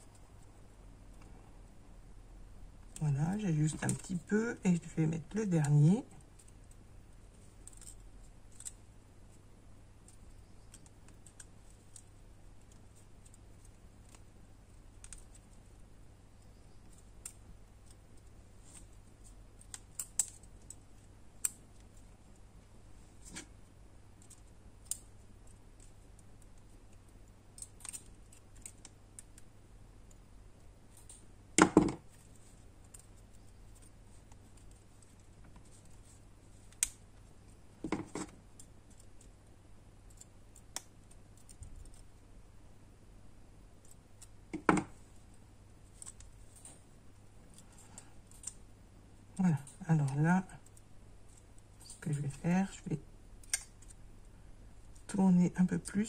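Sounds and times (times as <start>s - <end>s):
pliers twisting wire clicks: 7.6s - 8.8s, 19.6s - 21.8s, 24.2s - 29.4s, 36.7s - 37.0s, 40.1s - 42.1s, 47.5s - 48.6s, 53.4s - 54.0s.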